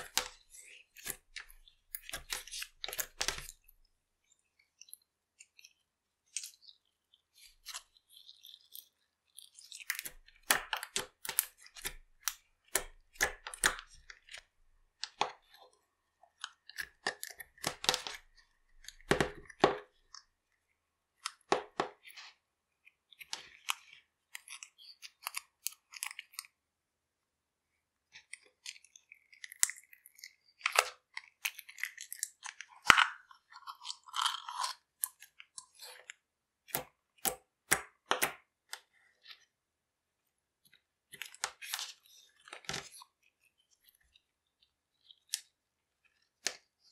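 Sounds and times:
slime squelching: 0.0 - 26.5.

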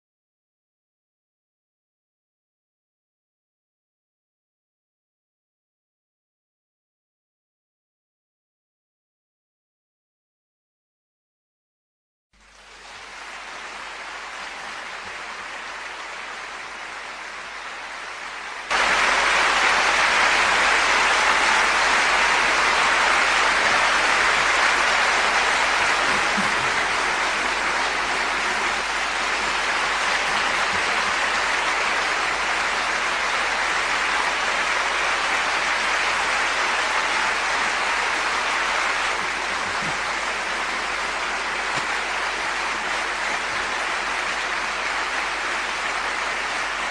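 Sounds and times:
large audience applause: 12.4 - 46.9.

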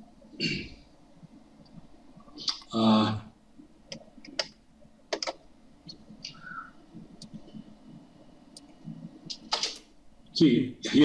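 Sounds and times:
mouse and keyboard clicks: 3.9 - 6.5, 8.6 - 9.9.

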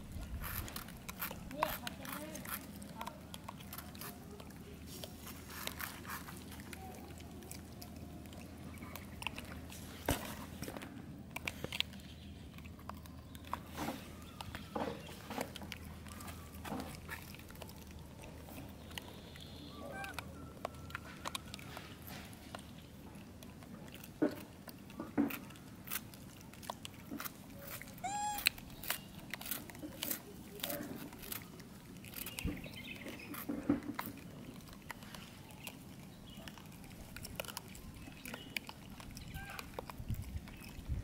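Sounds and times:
monkeys chewing food: 0.0 - 41.0
high arching monkey call: 28.0 - 28.6.

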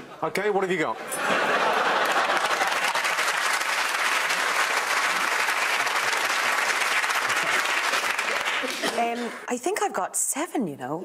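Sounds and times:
large crowd clapping: 1.4 - 9.5.

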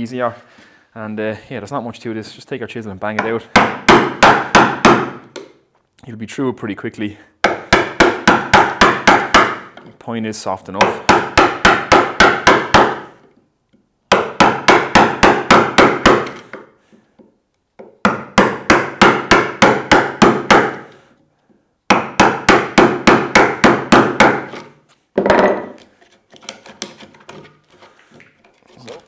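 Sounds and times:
wooden mallet striking chisel: 3.2 - 5.6, 7.4 - 10.0, 10.8 - 21.0, 21.9 - 27.9.

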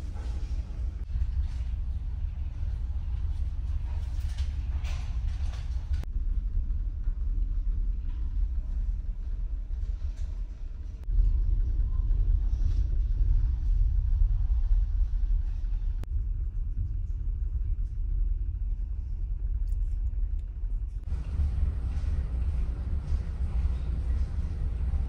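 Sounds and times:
ship engines rumbling: 21.0 - 25.0.

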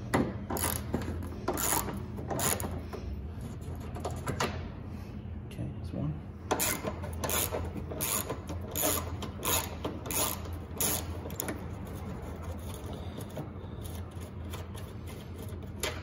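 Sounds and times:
ratchet pawl clicking: 0.6 - 2.7, 6.5 - 11.6.

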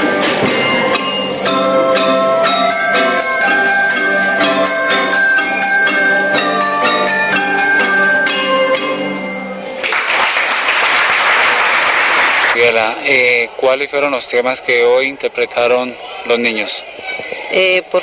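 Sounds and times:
children playing tuned percussion: 0.0 - 10.2
audience applause: 9.8 - 12.7.

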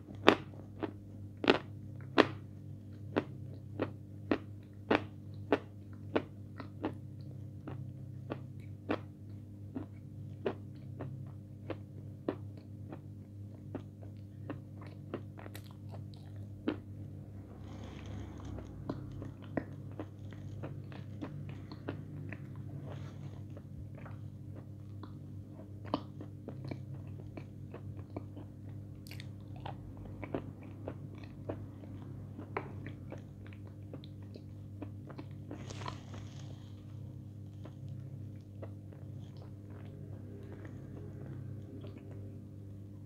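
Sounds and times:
crunching and chewing: 0.0 - 42.6
low hum: 13.2 - 43.0.

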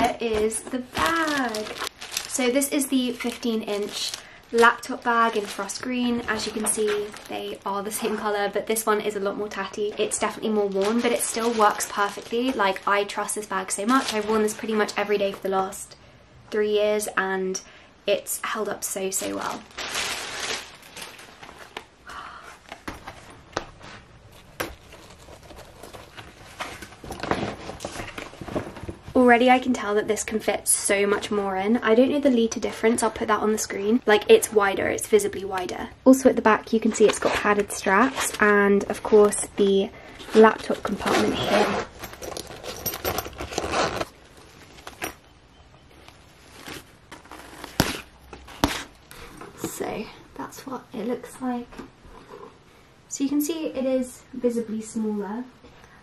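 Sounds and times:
backpack fabric rustling: 40.3 - 45.2, 46.0 - 49.0.

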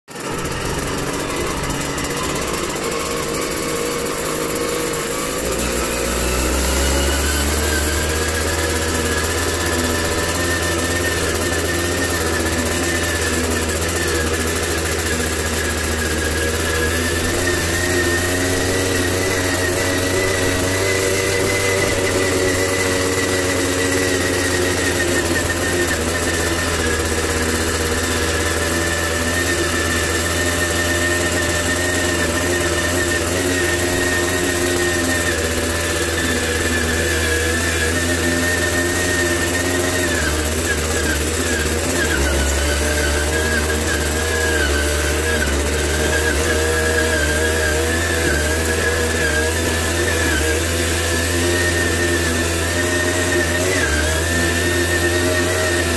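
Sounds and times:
two-stroke moped engine: 0.0 - 55.9.

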